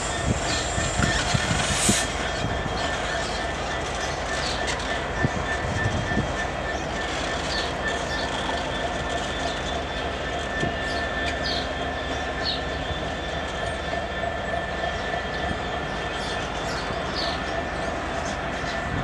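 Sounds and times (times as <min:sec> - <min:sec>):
high whine: 0:00.0 - 0:08.6
train wheels rumbling on rail: 0:00.0 - 0:19.0.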